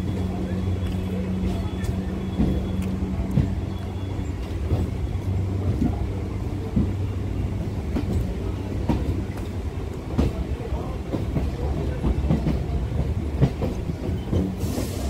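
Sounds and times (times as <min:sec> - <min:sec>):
electric train humming: 0:00.0 - 0:15.0.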